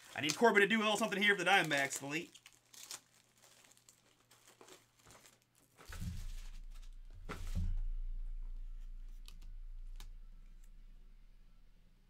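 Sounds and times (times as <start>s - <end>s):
low thumps: 5.9s - 12.0s
low hum: 6.0s - 12.0s.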